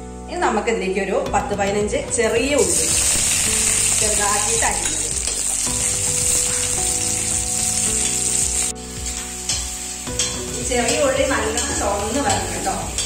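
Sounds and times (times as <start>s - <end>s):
onions sizzling in hot oil: 2.6s - 13.0s.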